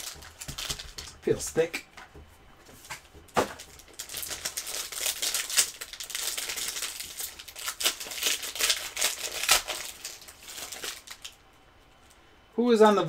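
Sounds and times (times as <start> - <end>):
foil wrapper crinkling: 0.0 - 1.7, 3.0 - 11.4.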